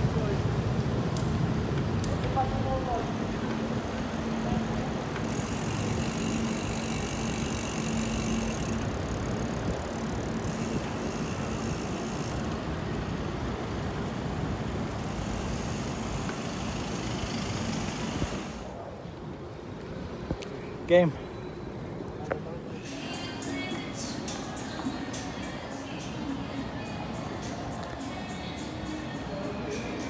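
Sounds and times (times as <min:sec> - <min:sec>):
steady hum: 0:00.0 - 0:21.9
road noise: 0:00.0 - 0:30.0.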